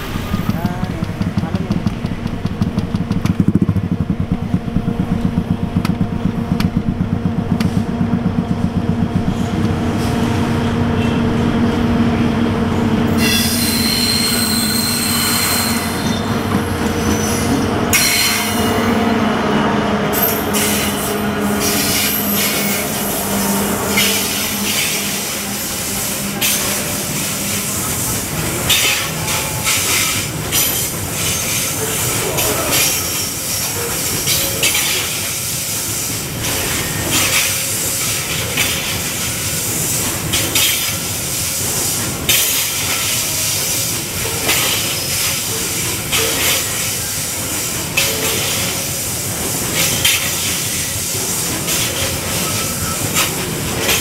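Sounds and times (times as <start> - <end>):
diesel locomotive engines pulsing: 0.0 - 54.0
wheels clicking over rail joints: 0.3 - 9.8
high wheel squeal: 13.1 - 16.4, 52.2 - 53.2.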